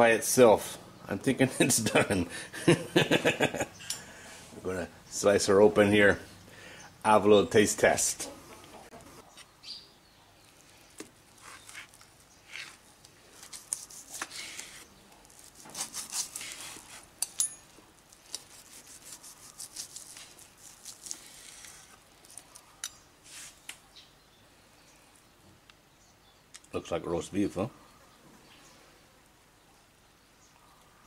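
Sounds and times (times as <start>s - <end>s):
knife sawing meat: 15.5s - 17.0s, 18.4s - 21.9s.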